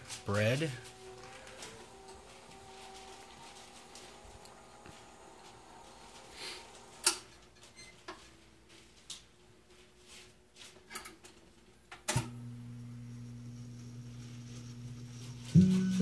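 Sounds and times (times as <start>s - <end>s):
steady low hum: 12.3s - 16.0s.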